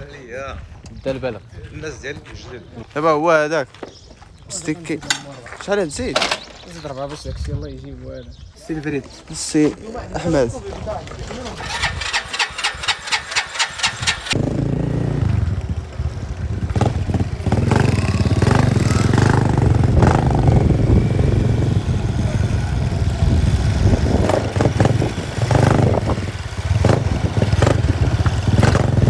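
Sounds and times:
engine running: 0:10.8 - 0:29.0.

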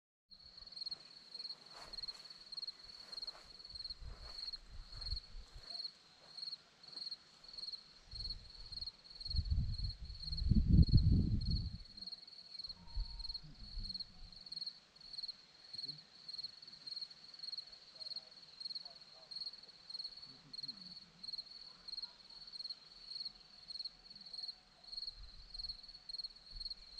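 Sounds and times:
crickets chirping: 0:00.4 - 0:26.9
wind rumble on microphone: 0:03.7 - 0:05.6, 0:08.1 - 0:12.0.

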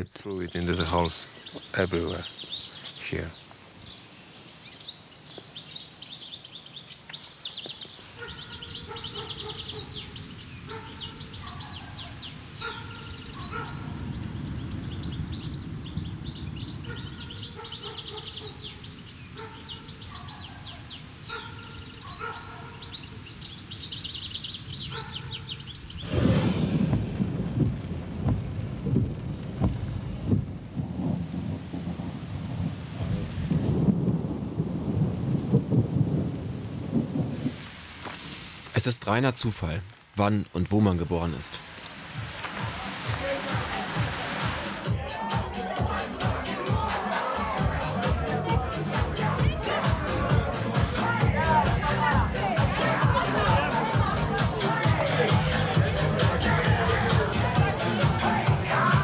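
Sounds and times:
low hiss: 0:00.0 - 0:11.4, 0:34.6 - 0:44.9
birds chirping and trilling: 0:00.0 - 0:26.8
rain: 0:01.0 - 0:21.3, 0:25.5 - 0:45.3
thunderclap and rumbling thunder: 0:13.4 - 0:17.6, 0:26.0 - 0:38.4.

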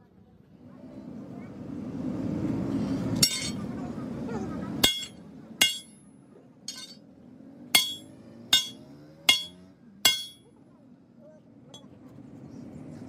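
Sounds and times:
sledgehammer ringing on steel: 0:03.2 - 0:03.6, 0:04.8 - 0:06.0, 0:06.7 - 0:07.0, 0:07.8 - 0:10.5.

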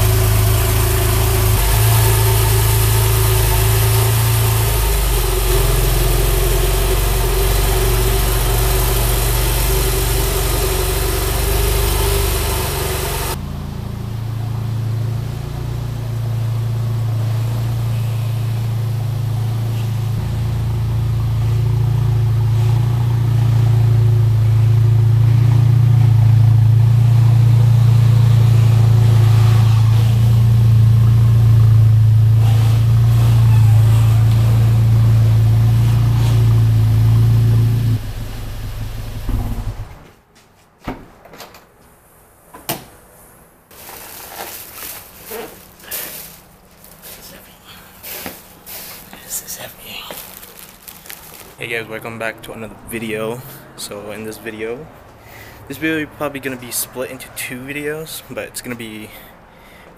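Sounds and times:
car engine running at low speed: 0:00.0 - 0:40.1.

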